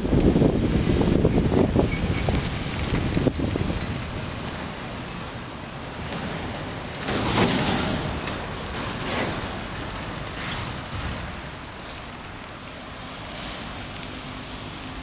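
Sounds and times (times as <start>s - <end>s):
wind on microphone: 0.0s - 4.9s
bicycle tyres on wet asphalt: 0.0s - 15.0s.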